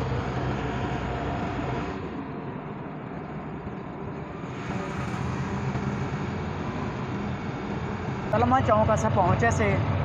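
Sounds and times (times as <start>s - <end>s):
road and traffic noise: 0.0s - 10.0s.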